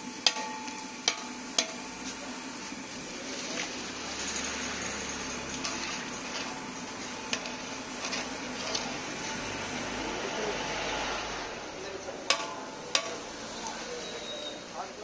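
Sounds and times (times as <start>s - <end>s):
food deep-frying in oil: 0.0s - 15.0s
metal skimmer clanking on wok: 0.2s - 1.8s, 12.2s - 13.4s.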